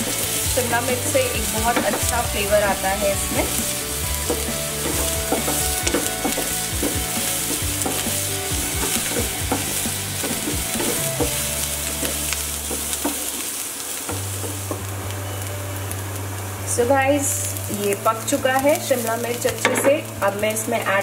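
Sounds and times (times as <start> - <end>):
wooden spatula scraping a pan: 0.0 - 14.9
vegetables sizzling in oil: 0.0 - 21.0.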